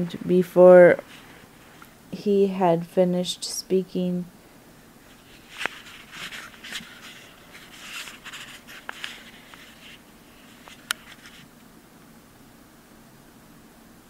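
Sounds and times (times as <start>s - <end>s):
soft scratching and rustling: 0.9s - 2.0s, 5.0s - 11.5s.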